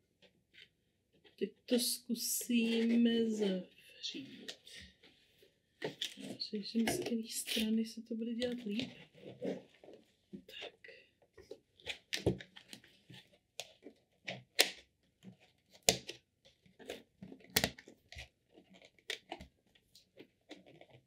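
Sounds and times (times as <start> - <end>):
plastic and moss crinkling: 5.8 - 21.0.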